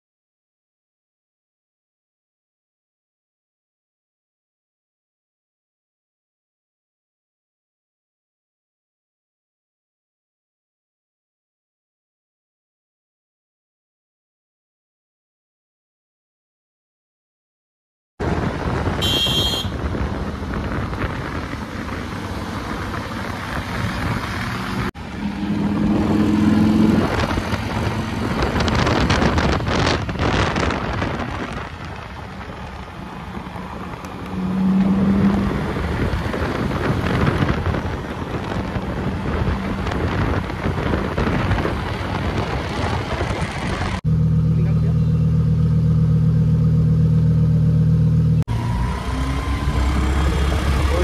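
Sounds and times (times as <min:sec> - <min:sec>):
wind rush on microphone: 0:18.2 - 0:24.9, 0:25.5 - 0:44.0
passing vehicle engines and tyres: 0:18.2 - 0:51.0
horn-like tone: 0:19.0 - 0:19.8.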